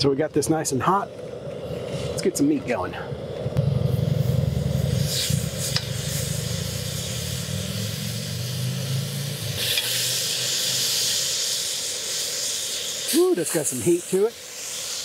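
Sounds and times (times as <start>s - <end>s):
low rumble: 0.0s - 9.6s
chicken sizzling on grill: 0.1s - 15.0s.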